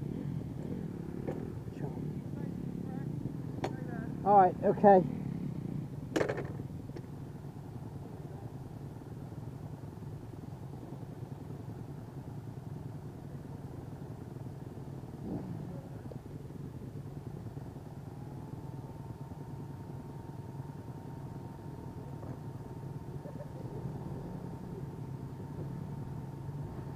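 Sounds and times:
dirt bike engine idling: 0.0 - 26.9.

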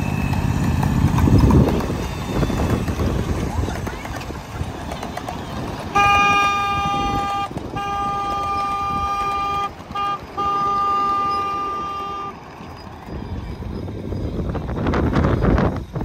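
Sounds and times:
two-note locomotive horn: 5.9 - 12.6.

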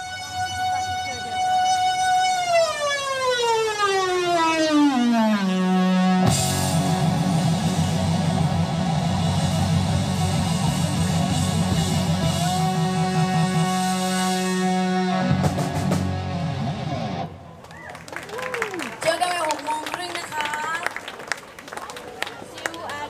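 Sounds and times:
loud rock music: 5.4 - 17.3.

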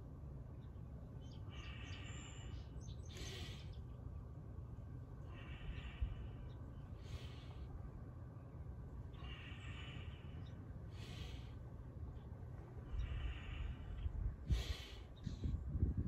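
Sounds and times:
low steady rumble: 0.0 - 16.0
person breathing deeply: 1.5 - 3.8, 5.2 - 7.8, 9.1 - 11.8, 12.8 - 15.6.

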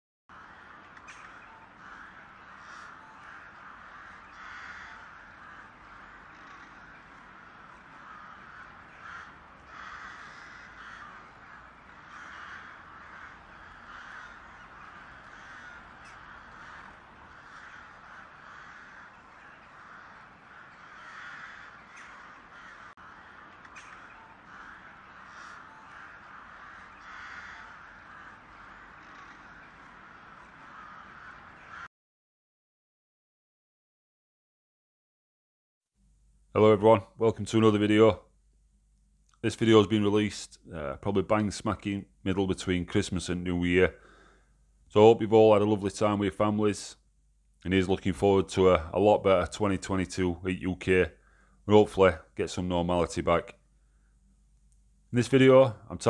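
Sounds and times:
crows cawing: 0.3 - 31.9, 40.7 - 44.6, 47.8 - 54.3
steady background hiss: 36.0 - 56.0.

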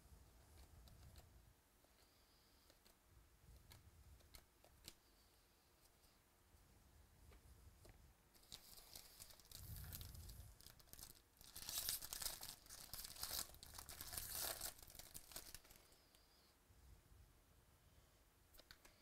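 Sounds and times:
cards rustling and clicking: 7.8 - 16.0
foil wrapper tearing and crinkling: 8.4 - 15.8.

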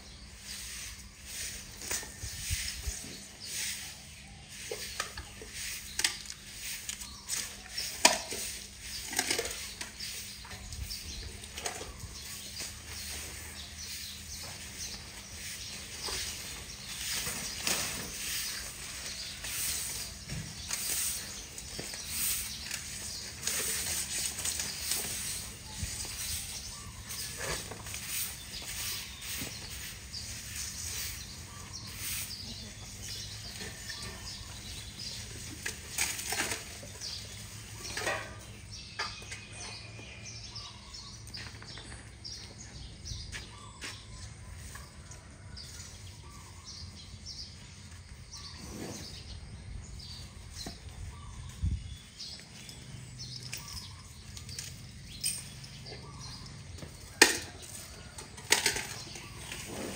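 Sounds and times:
dry hay rustling: 0.0 - 41.6.

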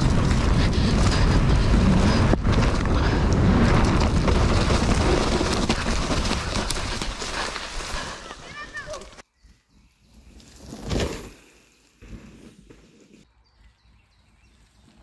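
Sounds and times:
wind buffeting microphone: 0.0 - 8.4
bike rattling and knocking: 0.0 - 9.2
tyre rumble: 0.0 - 9.2.

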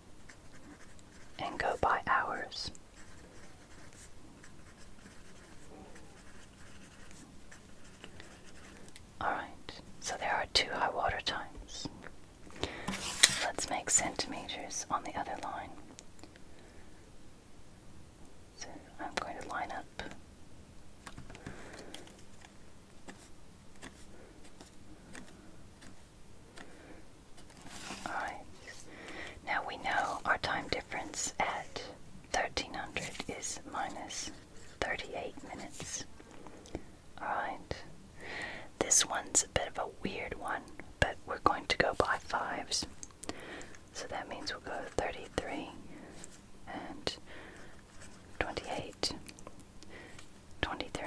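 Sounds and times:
low hiss: 0.0 - 51.0
pencil scratching on paper: 0.2 - 1.4, 3.0 - 8.8.

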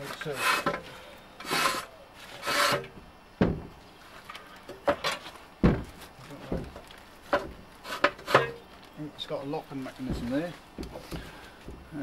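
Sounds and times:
knocks and clunks of steel boom: 2.9 - 3.8, 4.8 - 7.6.

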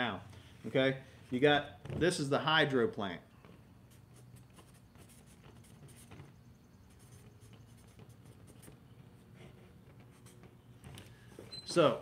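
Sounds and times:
marker scratching on paper: 3.8 - 10.7.

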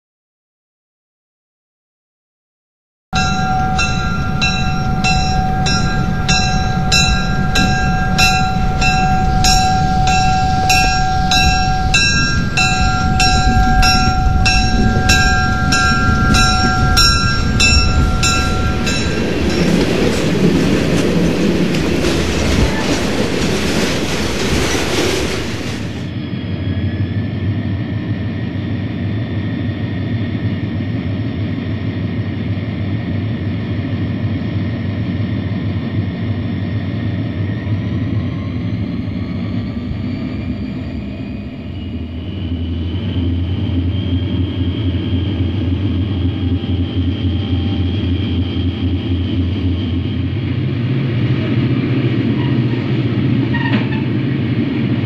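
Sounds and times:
locomotive bell ringing: 3.2 - 23.4
diesel engine drone: 3.2 - 55.0.

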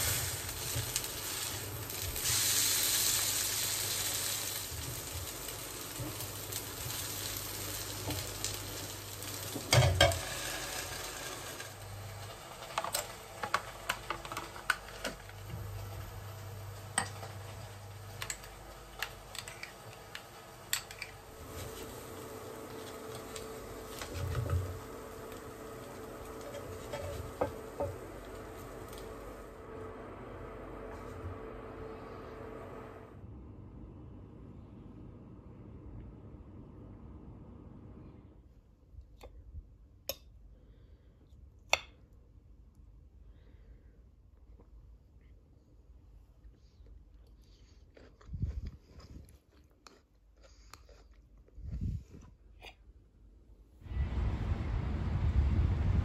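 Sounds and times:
pancakes sizzling in a frying pan: 0.0 - 29.5
spatula scraping: 17.0 - 29.1.

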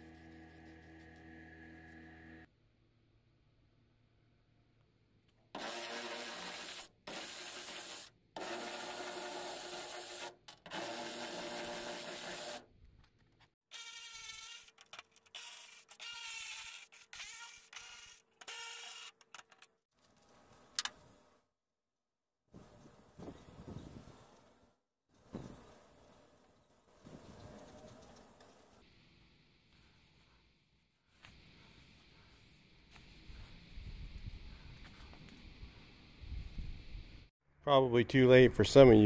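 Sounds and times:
electric ratchet motor whine: 13.7 - 19.2.

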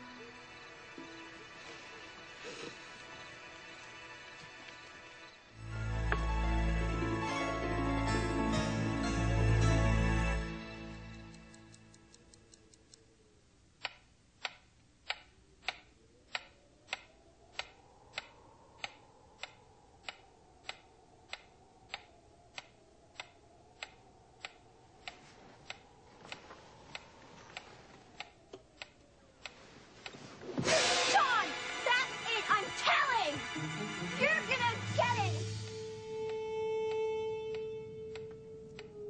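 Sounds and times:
metronome ticking: 10.8 - 13.0.

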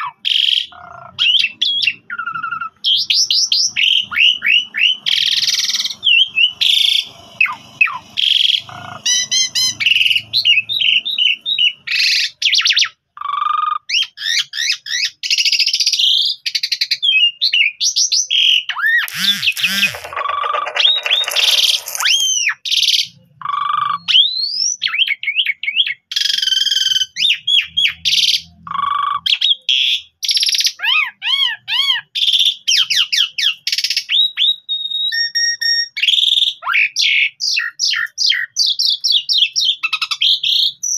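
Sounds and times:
starling singing: 18.6 - 22.4.

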